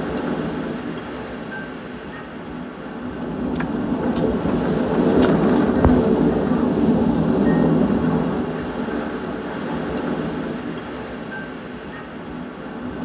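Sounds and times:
storm wind gusting through trees: 0.0s - 13.0s
heavy rain: 2.7s - 11.1s.

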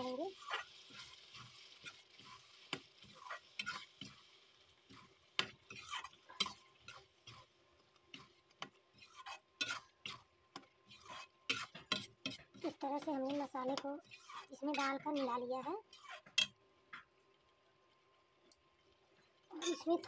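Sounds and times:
ladle stirring gravy: 0.0s - 17.1s
ladle scraping and clinking on pan: 0.4s - 4.2s, 4.9s - 7.5s, 8.1s - 15.3s.

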